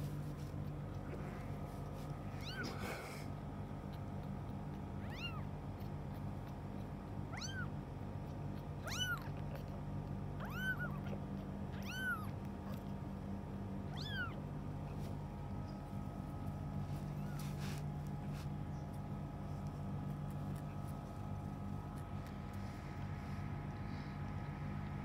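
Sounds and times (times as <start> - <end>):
kitten mewing: 2.3 - 3.3, 5.0 - 5.5, 7.3 - 7.7, 8.8 - 9.8, 10.4 - 12.9, 13.9 - 14.4.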